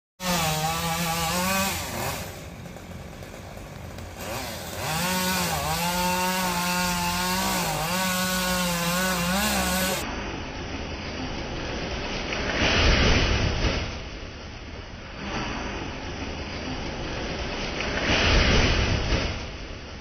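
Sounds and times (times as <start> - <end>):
chainsaw cutting wood: 0.2 - 10.1, 17.6 - 19.4.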